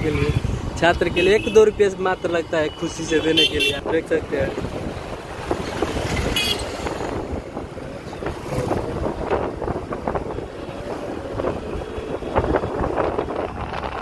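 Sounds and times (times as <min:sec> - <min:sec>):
wind buffeting microphone: 0:03.8 - 0:14.0.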